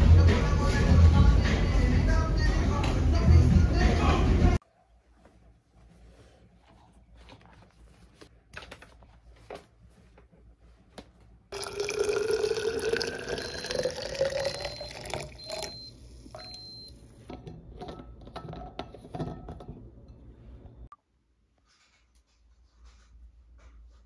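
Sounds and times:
coffee pouring into metal bottle: 0:11.5 - 0:16.5.

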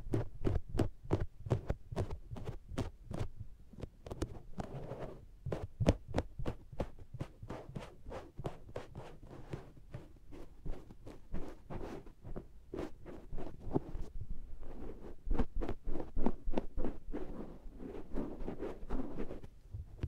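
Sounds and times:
soft rubbing: 0:06.4 - 0:19.7.

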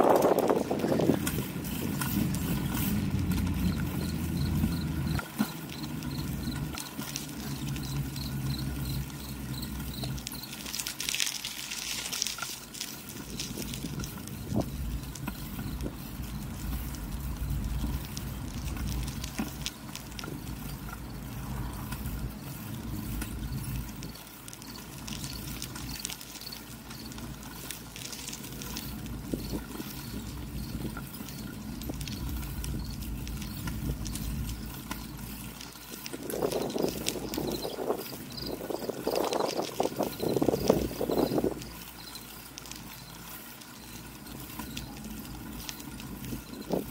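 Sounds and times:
wind on microphone: 0:00.0 - 0:03.6, 0:36.1 - 0:41.6
bicycle tyres rumbling on concrete: 0:00.0 - 0:46.9
small clicks and rattles: 0:00.0 - 0:46.9.

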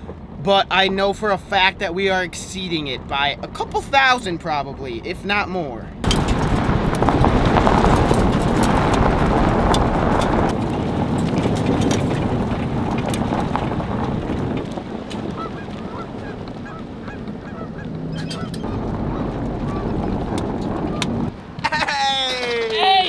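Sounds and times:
tyre noise on gravel: 0:06.0 - 0:23.0
geese honking: 0:15.3 - 0:20.0.

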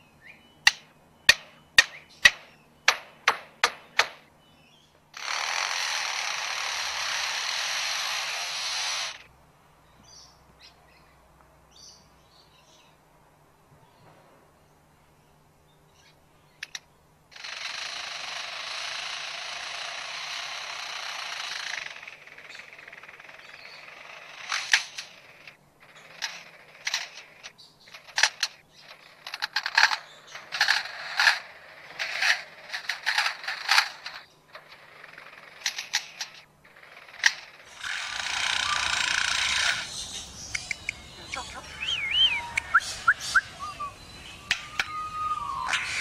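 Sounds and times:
bird mimicking chainsaw hiss: 0:05.2 - 0:09.2, 0:37.7 - 0:46.0
bird mimicking mechanical clicks: 0:05.2 - 0:09.3, 0:16.6 - 0:46.0.

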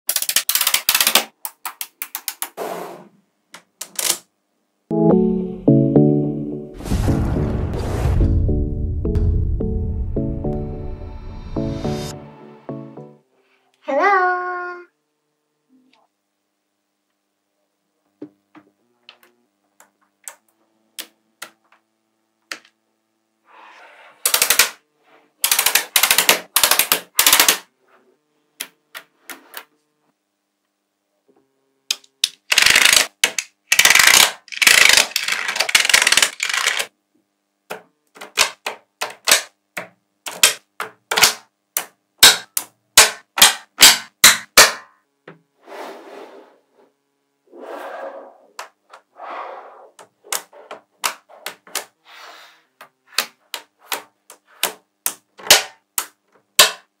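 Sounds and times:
magnetic balls clicking: 0:00.1 - 0:02.6, 0:25.4 - 0:27.6, 0:31.9 - 0:36.9.

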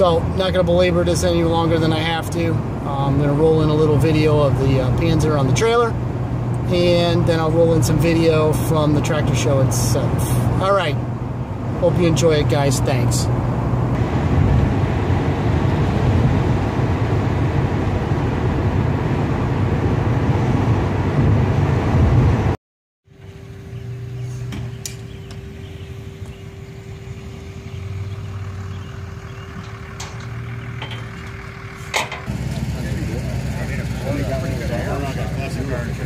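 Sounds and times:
road and engine noise in a car: 0:00.0 - 0:36.0
steady droning tone: 0:23.1 - 0:36.0.

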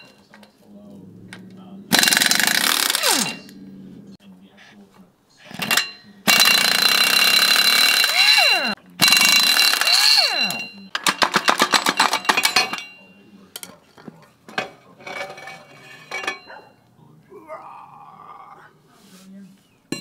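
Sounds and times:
pneumatic impact wrench: 0:01.9 - 0:03.4.

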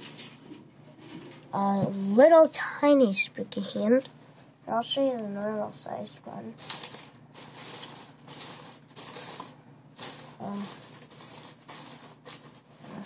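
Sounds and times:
paper rustling and crinkling: 0:06.6 - 0:13.0.

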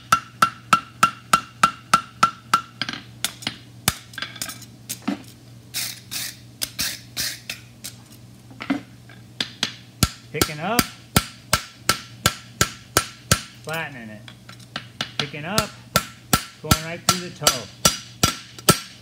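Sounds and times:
hammer striking metal on anvil: 0:00.0 - 0:04.6, 0:09.4 - 0:13.6, 0:14.8 - 0:19.0.

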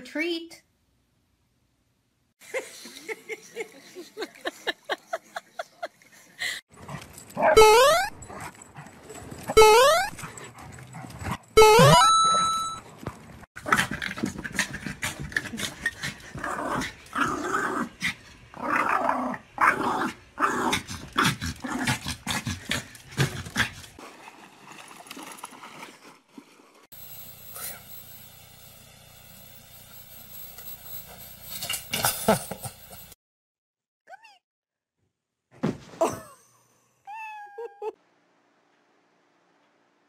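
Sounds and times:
small dog barking and growling: 0:13.6 - 0:23.8.

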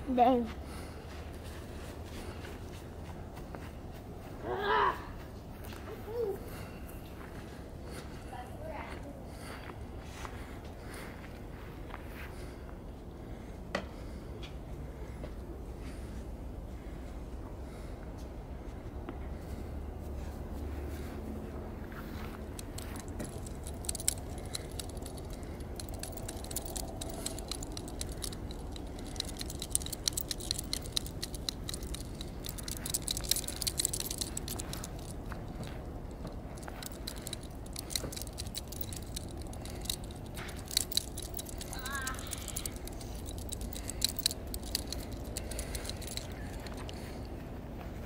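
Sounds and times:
low steady rumble: 0:05.3 - 0:48.0
dog tags jingling: 0:22.4 - 0:47.3.

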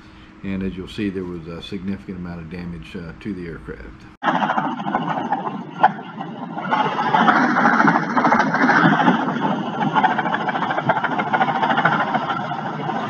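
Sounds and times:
helicopter engine and rotor: 0:04.2 - 0:13.0.

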